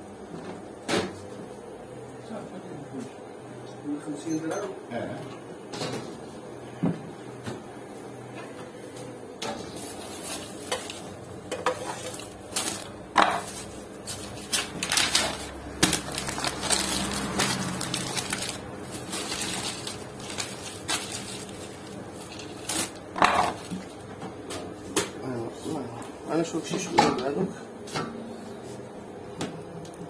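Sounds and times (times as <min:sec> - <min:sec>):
cling film crinkling: 0:11.9 - 0:12.9, 0:13.5 - 0:23.7.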